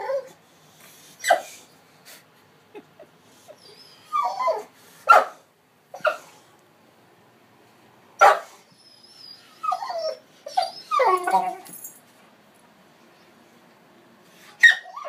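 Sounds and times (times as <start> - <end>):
dog whimpering: 3.5 - 4.7, 8.8 - 11.7, 14.6 - 15.0.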